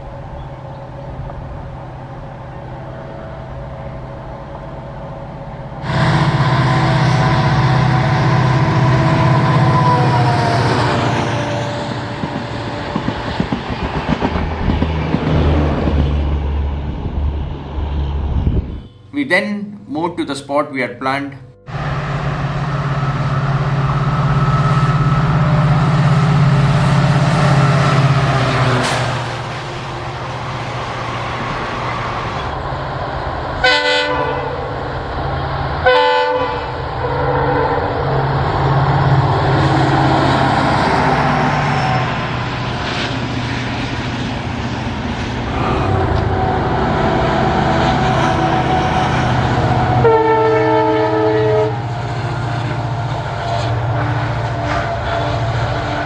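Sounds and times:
diesel locomotive engines droning: 0.0 - 56.0
locomotive horn blasts: 5.8 - 12.9, 18.6 - 19.9, 21.3 - 28.8, 33.6 - 34.7, 35.8 - 38.2, 45.6 - 56.0.

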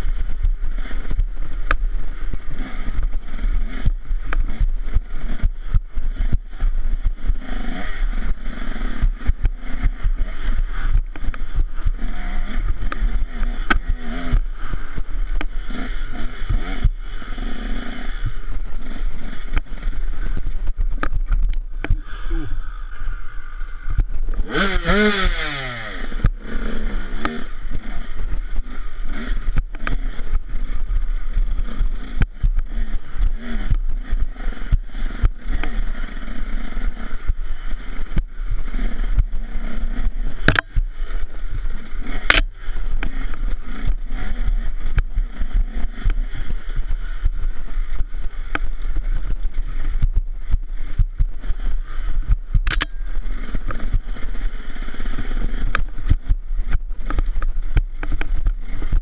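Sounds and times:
knocks and clatter over rough ground: 0.0 - 22.2, 22.9 - 59.0
dirt bike engine running hard: 0.0 - 59.0
wind rumble on helmet camera: 0.0 - 59.0
sharp cracks: 50.9 - 59.0.

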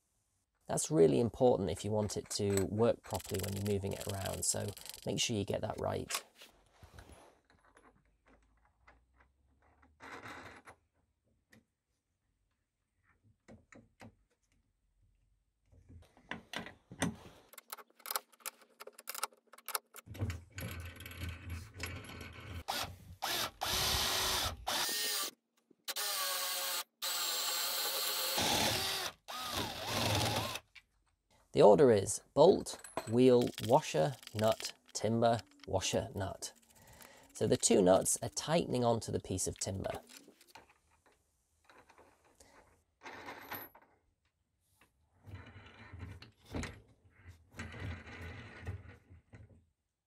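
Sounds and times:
cordless drill boring into wood: 22.6 - 25.3, 25.9 - 30.6.

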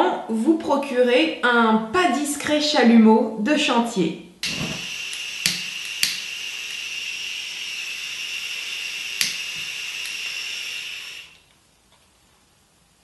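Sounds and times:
lighter clicks: 4.4 - 6.3
blowtorch gas hissing: 4.4 - 11.4.

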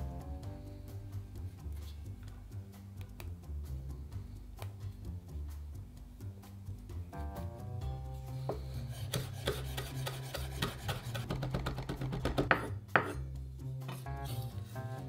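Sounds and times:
background music: 0.0 - 15.0
knife chopping on wooden board: 8.5 - 13.2.

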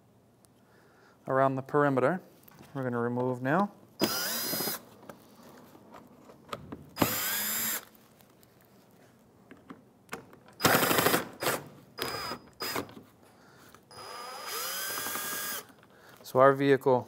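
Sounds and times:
cordless drill spinning: 4.0 - 4.8, 7.0 - 7.9, 12.0 - 13.0, 13.9 - 15.8.

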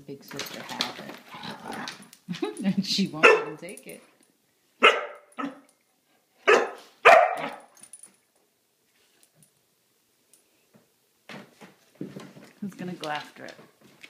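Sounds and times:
dog barking: 3.2 - 3.6, 4.8 - 5.7, 6.4 - 7.7.

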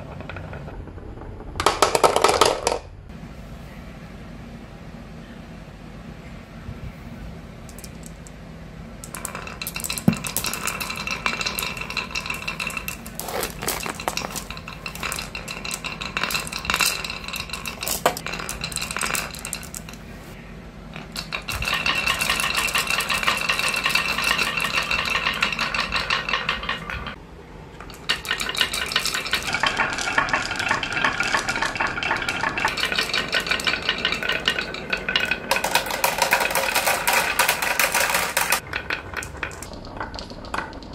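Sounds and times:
glass marbles rattling: 7.7 - 8.2, 9.0 - 20.2, 21.0 - 27.2, 27.8 - 40.9.

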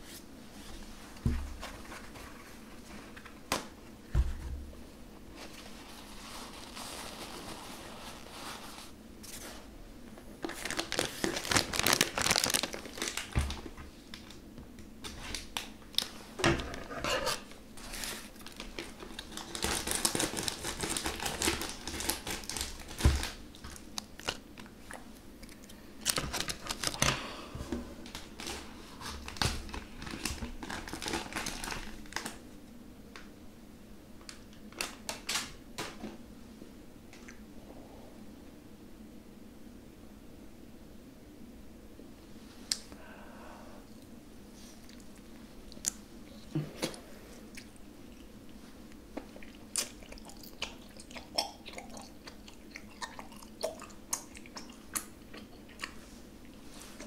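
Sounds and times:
plastic wrapper crinkling and tearing: 10.4 - 14.4, 17.3 - 24.7, 25.4 - 27.2, 28.1 - 32.4.

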